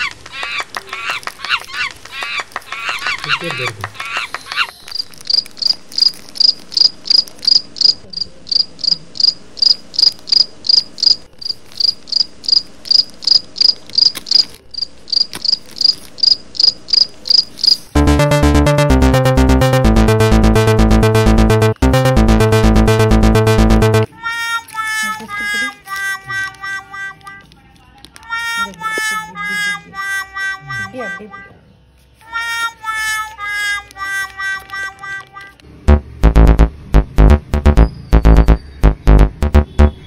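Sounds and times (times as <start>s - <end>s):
cricket chirping: 4.9s - 17.8s.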